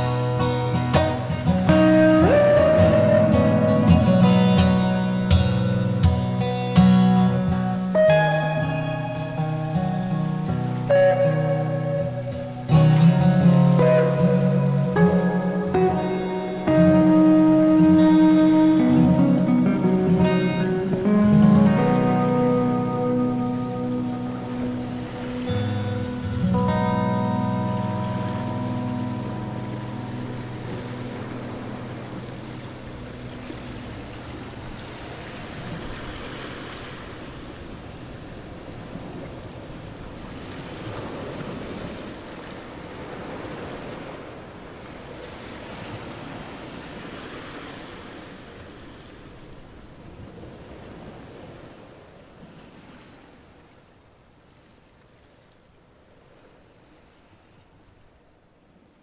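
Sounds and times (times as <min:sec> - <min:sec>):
guitar music: 0:00.0 - 0:35.6.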